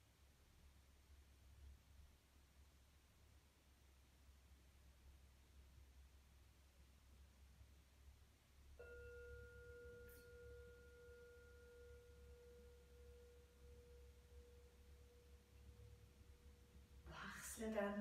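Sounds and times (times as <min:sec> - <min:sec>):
singing bowl ringing: 0:08.8 - 0:17.0.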